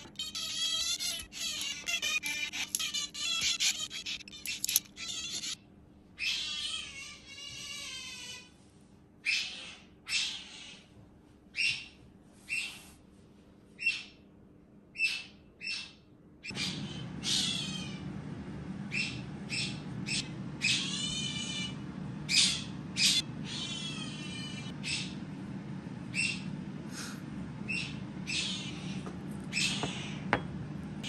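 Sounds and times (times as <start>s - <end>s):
otter chirping squeaks: 0.0s - 5.6s, 18.9s - 25.2s, 26.1s - 26.5s, 27.7s - 30.3s
low steady hum: 16.5s - 31.0s.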